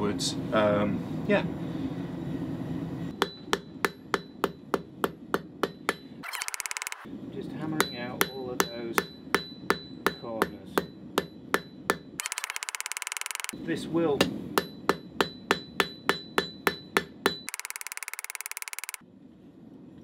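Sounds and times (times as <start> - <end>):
hammer striking steel on anvil: 3.1 - 6.2, 7.8 - 12.1, 14.2 - 17.5
faint anvil ring: 7.8 - 12.0.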